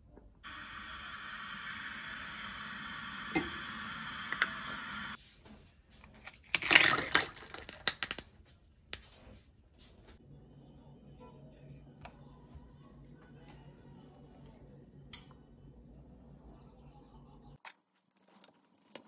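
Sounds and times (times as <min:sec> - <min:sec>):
steady hiss: 0:00.4 - 0:05.2
ice cubes clattering into mug: 0:06.4 - 0:08.2.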